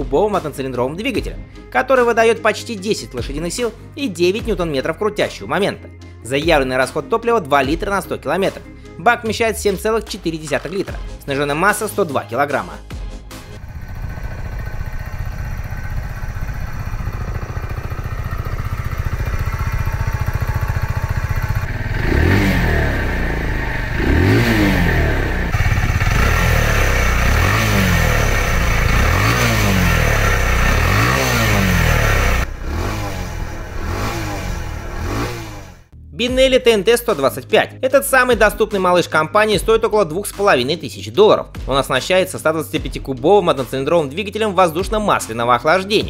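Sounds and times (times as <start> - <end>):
motorcycle engine idling and revving: 13.0 - 36.0.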